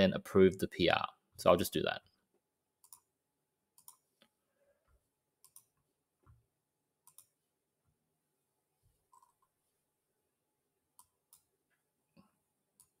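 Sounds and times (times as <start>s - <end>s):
faint computer mouse clicks: 2.8s - 3.1s, 3.8s - 4.3s, 5.4s - 5.8s, 7.0s - 7.3s.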